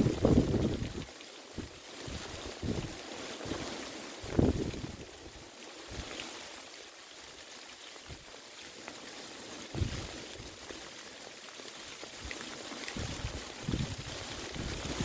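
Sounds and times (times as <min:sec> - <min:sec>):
wind buffeting microphone: 0:00.0 - 0:01.0, 0:01.6 - 0:03.0, 0:04.2 - 0:05.0, 0:09.7 - 0:10.1, 0:13.0 - 0:15.0
rain falling: 0:00.0 - 0:15.0.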